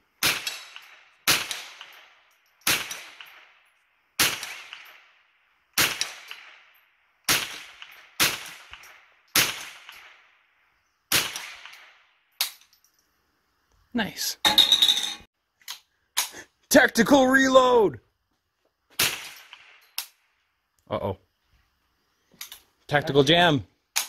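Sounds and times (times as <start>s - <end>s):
rifle shots: 0.2s - 3.5s, 4.2s - 5.0s, 5.8s - 6.7s, 7.3s - 10.2s, 11.1s - 12.0s, 19.0s - 19.8s.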